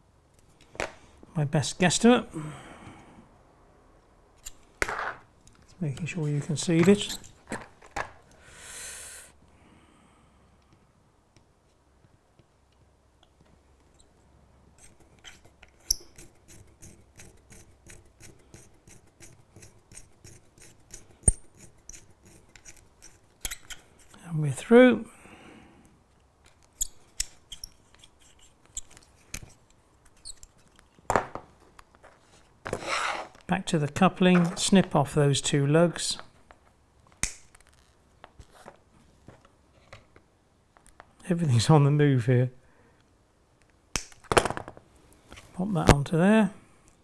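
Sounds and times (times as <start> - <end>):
person breathing out: 2.3 - 3.3, 8.4 - 10.6.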